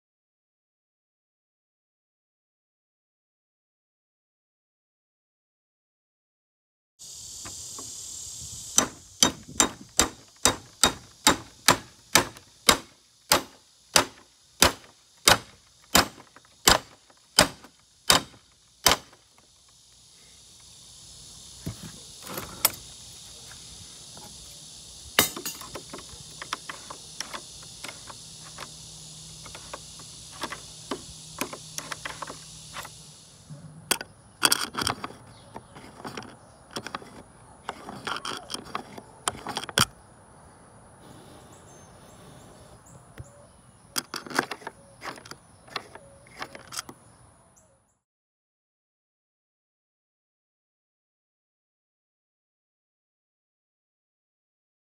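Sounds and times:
sharp metal strikes: 0:25.2 - 0:25.7
metal scraping in a lock: 0:33.5 - 0:39.9, 0:44.0 - 0:46.9.

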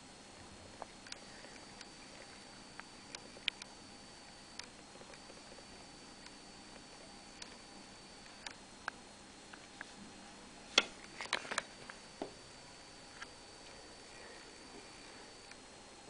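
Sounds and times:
high-pitched whine: 0:00.0 - 0:16.0
small clicks and ticks: 0:00.8 - 0:03.8, 0:04.4 - 0:09.9.

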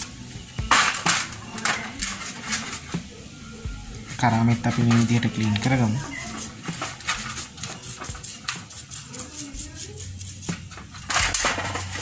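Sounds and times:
small brush scrubbing metal part: 0:04.5 - 0:12.0.

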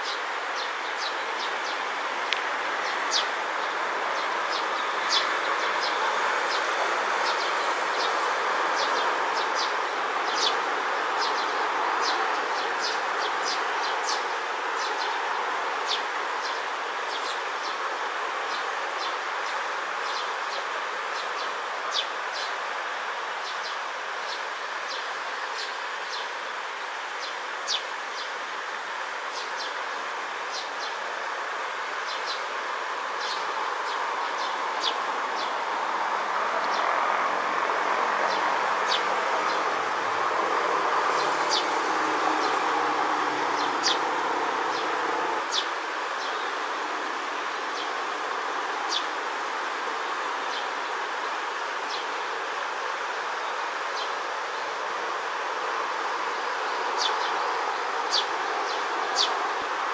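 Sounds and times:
sparrows chirping: 0:02.8 - 0:15.2, 0:33.2 - 0:35.7, 0:41.0 - 0:41.8, 0:43.6 - 0:44.1, 0:44.7 - 0:46.6, 0:47.5 - 0:49.2, 0:56.4 - 0:59.5.

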